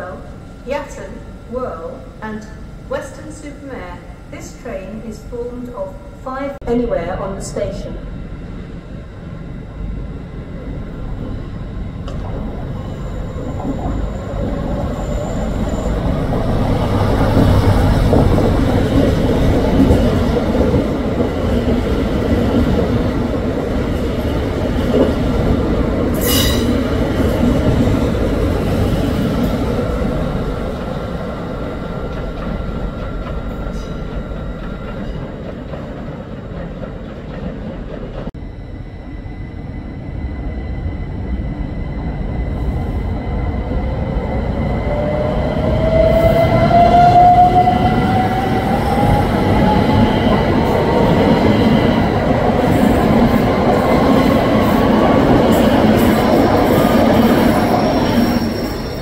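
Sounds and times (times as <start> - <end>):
thin steady whine: 0.0 - 35.2, 38.3 - 46.5
passenger train rumbling: 0.0 - 59.0.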